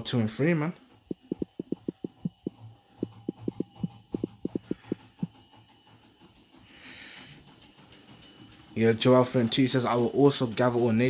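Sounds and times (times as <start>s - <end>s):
faint steady hum: 0.9s - 5.4s
fingertip taps on touchscreen: 1.2s - 2.3s.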